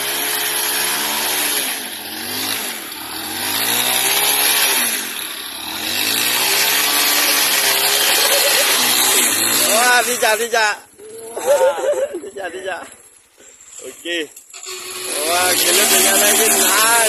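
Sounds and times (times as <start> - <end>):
motorcycle engine revving: 0.0 - 10.3, 14.6 - 17.0.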